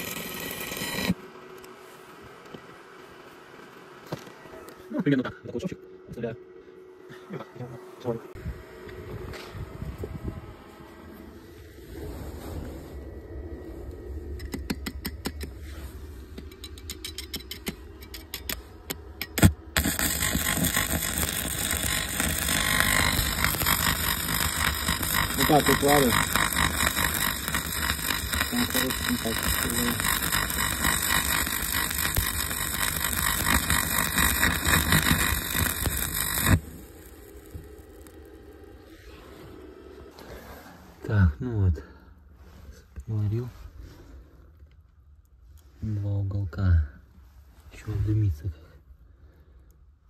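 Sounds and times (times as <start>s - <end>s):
welding arc crack: 0.0s - 1.2s, 17.2s - 38.5s
steady low hum: 0.0s - 50.0s
welding electrode clicking on steel: 16.4s - 38.2s.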